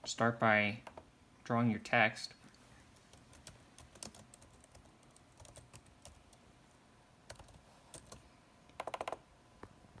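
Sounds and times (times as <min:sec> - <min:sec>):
laptop keyboard typing: 0:03.0 - 0:06.4, 0:07.3 - 0:09.2.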